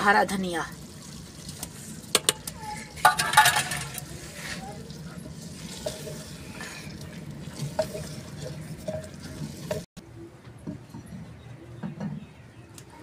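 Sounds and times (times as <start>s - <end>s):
food sizzling: 0.0s - 9.9s.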